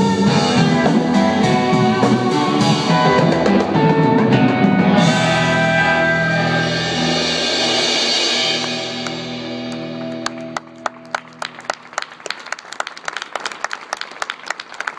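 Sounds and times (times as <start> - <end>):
audience applause: 8.6 - 14.9.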